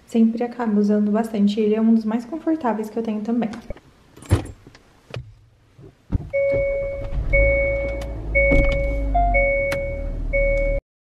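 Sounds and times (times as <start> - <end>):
car warning chime beeping: 6.3 - 10.8
car engine hum: 6.5 - 10.8.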